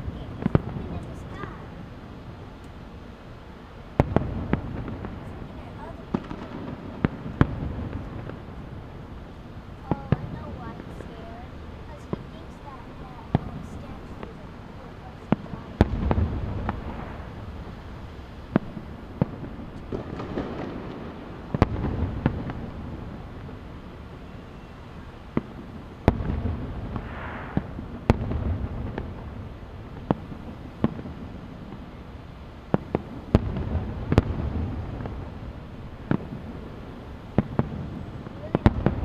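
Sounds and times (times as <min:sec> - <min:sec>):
fireworks bursting with bangs: 0:00.0 - 0:39.0
low rumble: 0:15.4 - 0:19.8.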